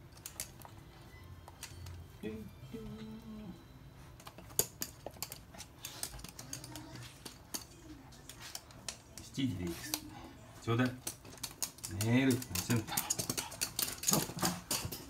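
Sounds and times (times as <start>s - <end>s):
dog claws clicking on hard floor: 4.2s - 10.1s, 10.7s - 15.0s.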